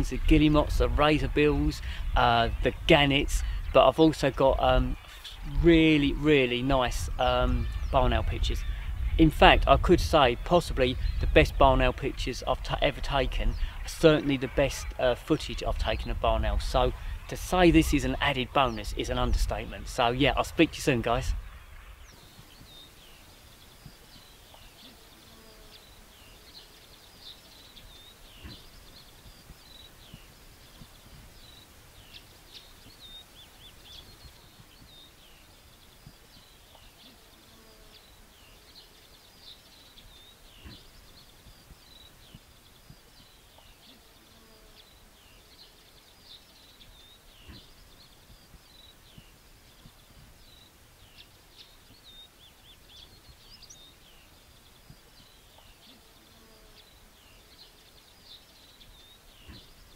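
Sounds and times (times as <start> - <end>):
low wind rumble: 0.0 - 24.4
songbirds chirping and trilling: 0.0 - 59.9.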